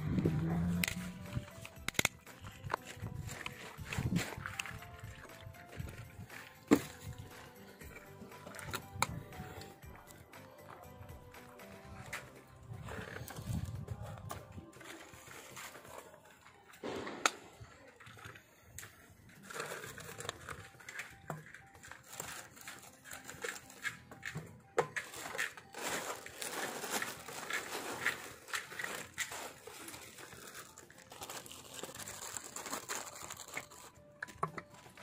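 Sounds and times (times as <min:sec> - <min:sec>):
plastic crinkling: 0:19.3 - 0:35.0.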